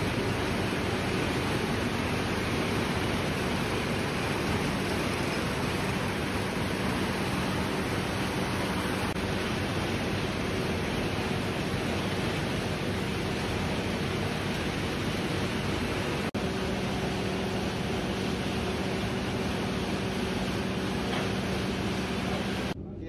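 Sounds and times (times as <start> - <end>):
water running over rollers: 0.0 - 22.8
faint constant hum: 0.0 - 23.0
geared rollers running: 11.2 - 22.8.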